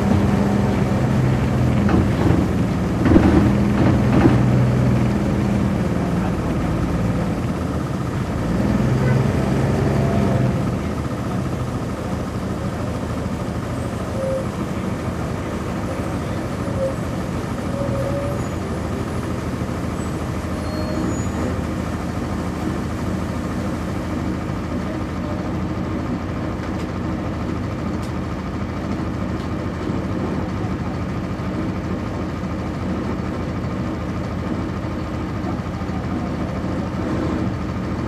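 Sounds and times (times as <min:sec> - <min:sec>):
bus diesel engine running: 0:00.0 - 0:38.0
faint short squeaks: 0:20.1 - 0:21.6.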